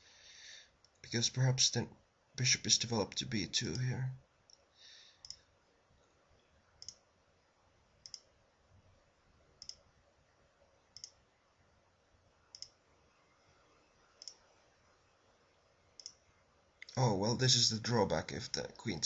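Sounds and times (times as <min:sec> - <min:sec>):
computer mouse clicks: 0:05.2 - 0:05.4, 0:06.8 - 0:07.0, 0:08.0 - 0:08.3, 0:09.6 - 0:09.8, 0:10.9 - 0:11.2, 0:12.5 - 0:12.8, 0:14.1 - 0:14.5, 0:16.0 - 0:16.2.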